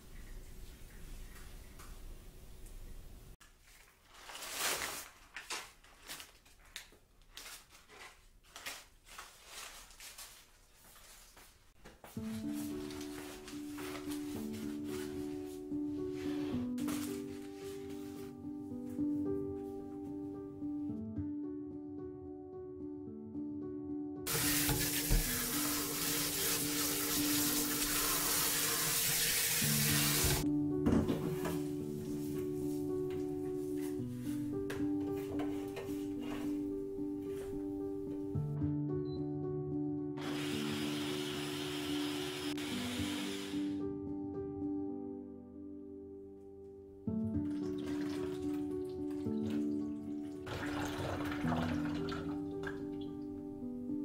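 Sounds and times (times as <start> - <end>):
plant sprigs rustling: 3.4 - 11.6
paper bag crinkling: 3.6 - 11.4, 12.4 - 15.2
soft background music: 11.0 - 54.0
tap water pouring into a sink: 24.3 - 30.4, 47.4 - 49.8, 50.4 - 52.8.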